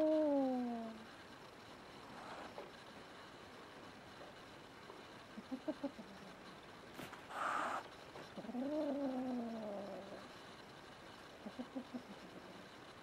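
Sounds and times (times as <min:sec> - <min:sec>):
kitten low sounds: 0:00.0 - 0:01.0
cat hissing: 0:07.0 - 0:10.1
cat growling yowl: 0:08.4 - 0:10.2.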